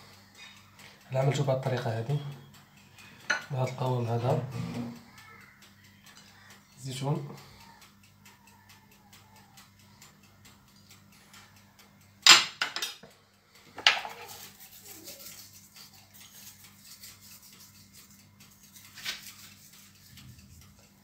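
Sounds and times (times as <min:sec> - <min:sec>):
kitchenware clinking and clattering: 0:12.2 - 0:13.1, 0:13.8 - 0:14.4.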